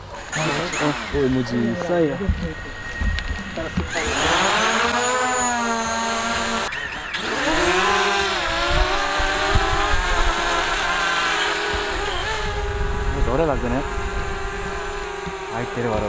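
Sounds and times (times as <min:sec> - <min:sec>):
drone propellers buzzing: 0:00.0 - 0:16.0.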